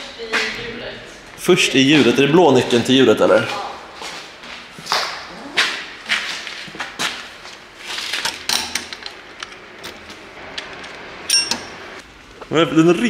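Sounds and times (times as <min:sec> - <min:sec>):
short metallic ring: 0:11.3 - 0:11.7.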